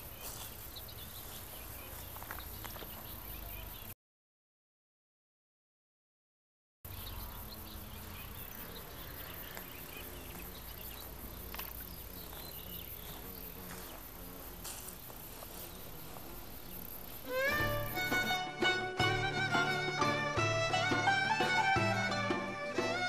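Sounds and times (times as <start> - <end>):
insects chirring: 0.0 - 4.0, 6.9 - 23.0
folk fiddle music: 17.2 - 23.0.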